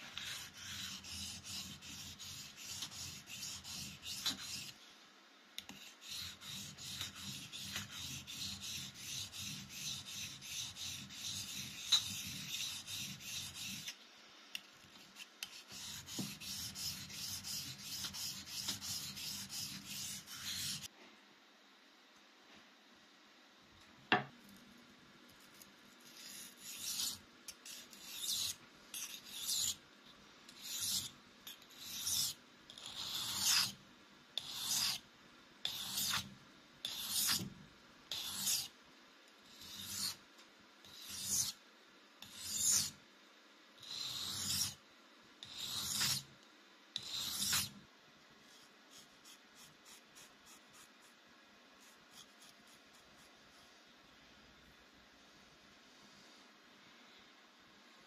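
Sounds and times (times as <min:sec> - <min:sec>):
knife scraping on whetstone: 0:00.1 - 0:04.8, 0:05.7 - 0:13.9, 0:15.2 - 0:20.9, 0:26.1 - 0:29.8, 0:30.6 - 0:33.8, 0:34.4 - 0:35.0, 0:35.6 - 0:37.5, 0:38.1 - 0:38.7, 0:39.6 - 0:40.2, 0:40.9 - 0:41.6, 0:42.2 - 0:42.9, 0:43.9 - 0:44.8, 0:45.4 - 0:46.2, 0:47.0 - 0:47.8.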